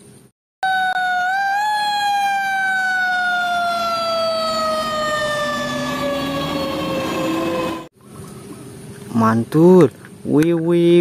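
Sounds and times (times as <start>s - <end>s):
fainter lower siren tone rising: 0.6s - 7.9s
fire truck siren falling tone: 0.6s - 7.9s.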